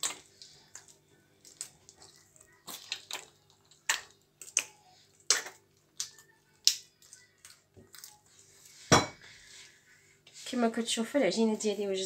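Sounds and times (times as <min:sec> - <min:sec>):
dough slapping and squelching: 0:00.0 - 0:06.8.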